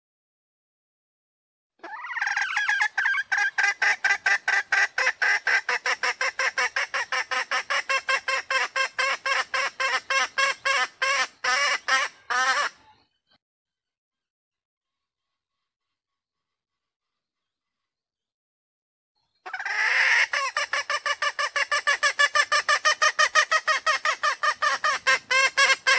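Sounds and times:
hen clucking: 1.8 - 12.9, 19.5 - 25.9.

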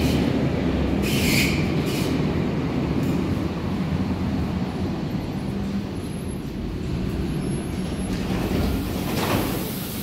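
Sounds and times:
train wheels rumbling: 0.0 - 10.0
train hiss: 1.0 - 2.3, 8.7 - 10.0.

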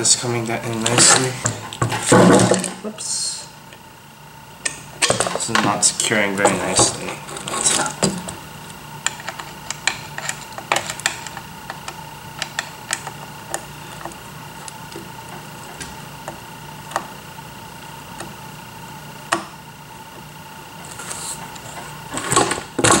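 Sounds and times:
steady hum: 0.0 - 23.0.

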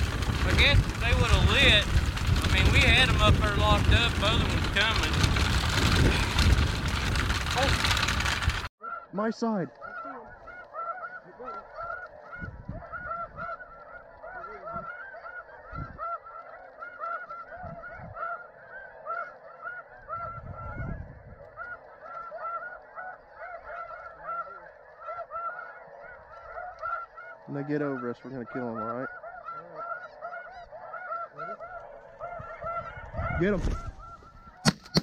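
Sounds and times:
low bumps: 0.0 - 8.7
geese honking: 0.0 - 35.0.

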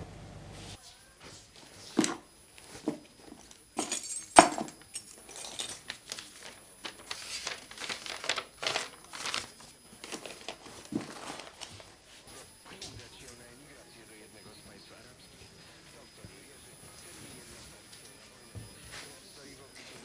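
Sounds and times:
paper rustling and crinkling: 5.4 - 13.4.

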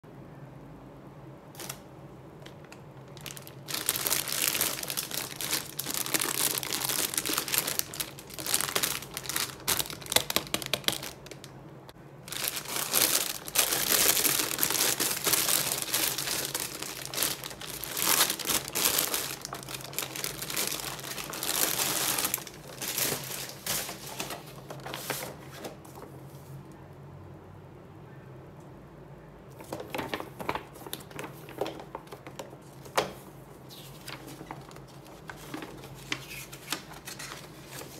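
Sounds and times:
plastic packaging crinkling: 1.5 - 11.6, 12.2 - 26.2, 29.5 - 37.9.

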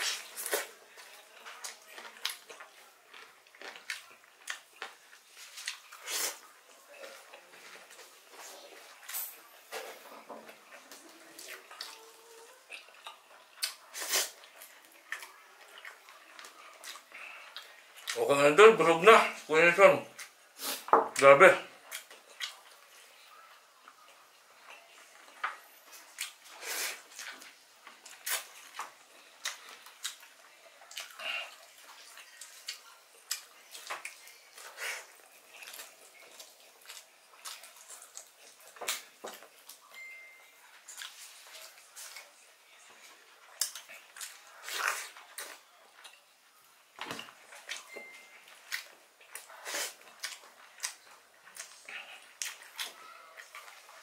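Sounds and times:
man chewing and lip smacking: 0.0 - 6.4, 10.7 - 12.0, 12.6 - 18.2, 21.8 - 23.0, 24.6 - 40.0, 40.7 - 42.3, 43.4 - 46.2, 47.4 - 54.0.

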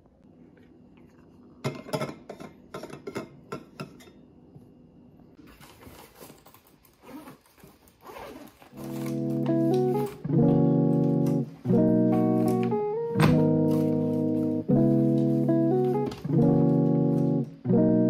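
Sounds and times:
zip pulled open: 7.0 - 9.5.

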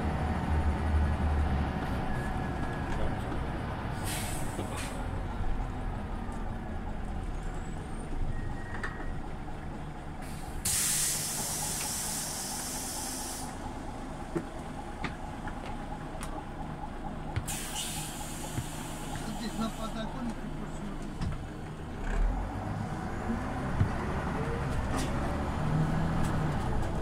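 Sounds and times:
bus engine rumbling: 0.0 - 27.0
compressed air hiss: 10.6 - 13.5.

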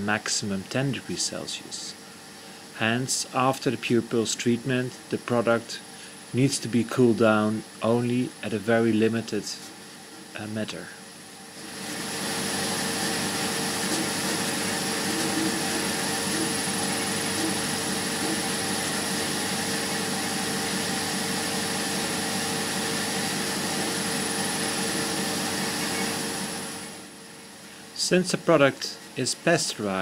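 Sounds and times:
steady hum tones: 0.0 - 30.0
machinery rushing hiss: 11.6 - 20.9.

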